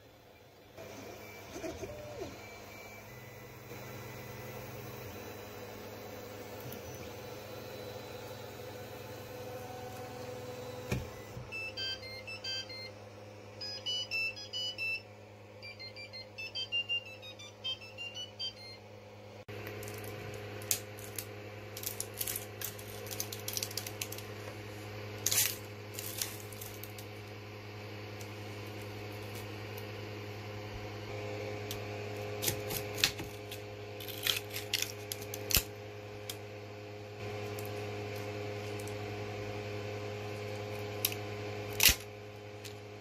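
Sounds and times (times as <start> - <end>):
printer fans humming: 0.1 - 18.8
short beeping notes: 15.6 - 18.8.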